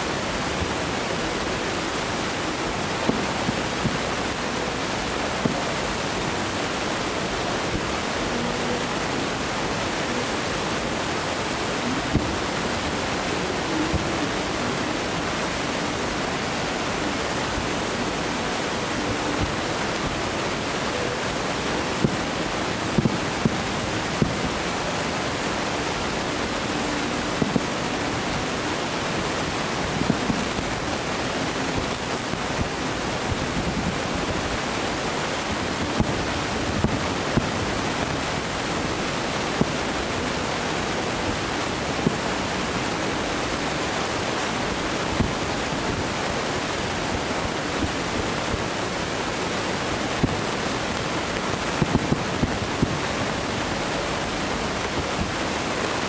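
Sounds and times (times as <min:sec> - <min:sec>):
steady rushing noise: 0:00.0 - 0:56.0
distant fireworks popping: 0:02.1 - 0:06.7, 0:18.8 - 0:40.2.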